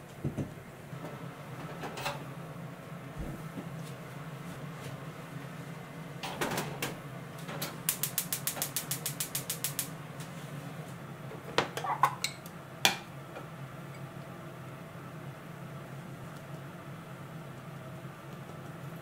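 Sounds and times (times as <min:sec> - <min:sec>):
gas igniter clicking: 0:07.9 - 0:09.9.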